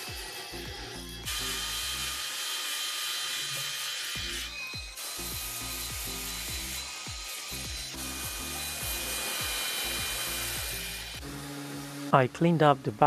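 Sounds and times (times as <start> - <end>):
background music with kick drum: 0.0 - 2.2, 4.1 - 12.2
drill abrasive wheel on wood: 0.0 - 13.0.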